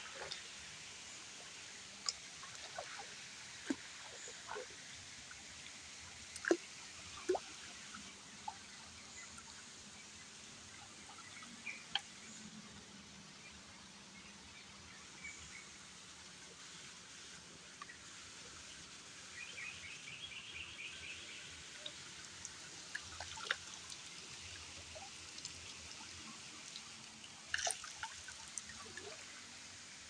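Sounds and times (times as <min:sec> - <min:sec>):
faint water trickle: 0:00.0 - 0:30.0
water drips and small splashes: 0:00.0 - 0:30.0.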